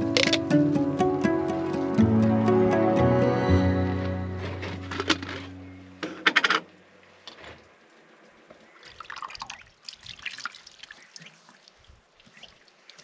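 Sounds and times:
music: 0.0s - 6.2s
water dripping: 8.8s - 13.0s.

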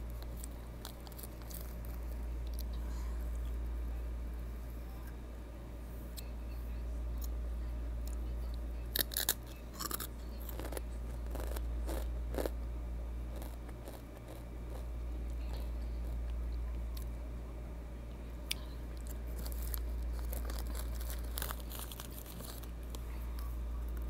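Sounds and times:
chips crunching while chewing: 0.2s - 2.7s, 8.9s - 12.6s, 13.3s - 16.3s, 18.5s - 23.0s.

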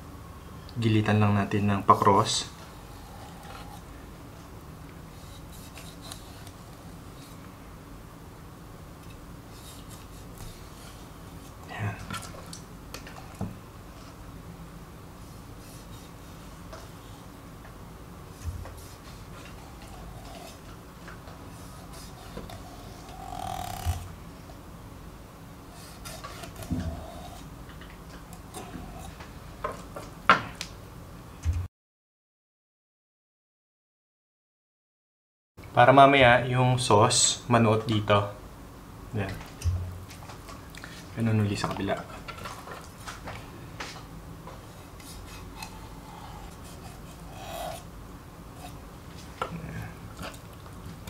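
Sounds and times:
knife scraping: 5.1s - 7.4s, 9.5s - 11.6s, 18.6s - 20.8s, 21.6s - 24.1s, 25.8s - 27.5s, 28.3s - 29.2s, 44.8s - 47.9s, 48.5s - 49.4s
knife cutting fish scales: 25.8s - 27.5s, 45.0s - 47.8s.

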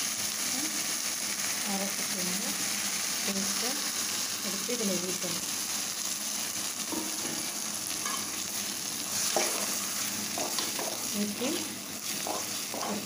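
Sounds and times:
paste sizzling in hot oil: 0.0s - 13.0s
spatula knocking against pan: 10.4s - 11.0s, 12.2s - 13.0s.

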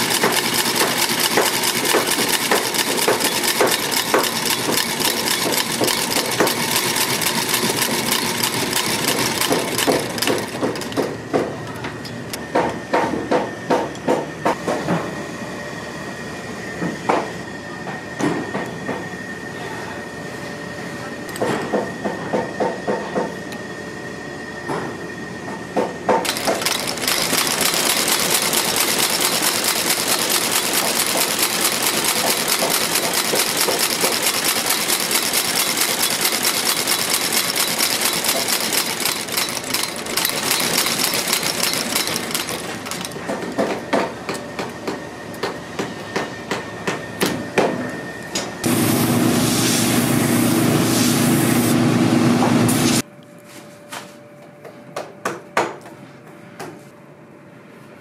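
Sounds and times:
stitching machine clatter: 0.0s - 11.1s, 26.2s - 43.6s.

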